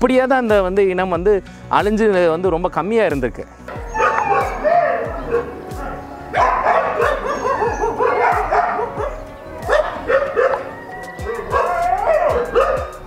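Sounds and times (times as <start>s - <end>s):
music with steady beat: 0.0s - 13.0s
dogs whining and yelping: 3.7s - 13.0s.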